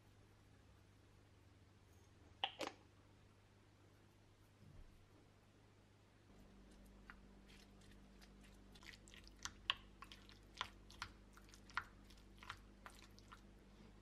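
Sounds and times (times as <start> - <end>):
spoon mashing avocado in bowl: 6.4 - 13.5.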